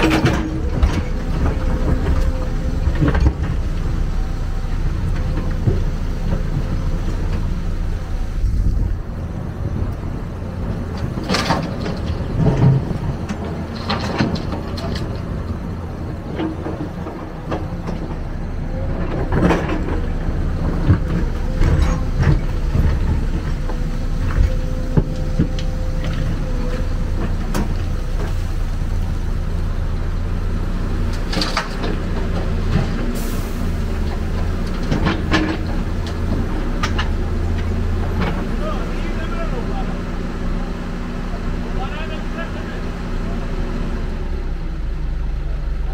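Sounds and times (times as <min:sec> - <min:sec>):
knocks and clanks: 0:00.0 - 0:03.8, 0:10.9 - 0:15.3
excavator diesel engine: 0:00.0 - 0:45.9.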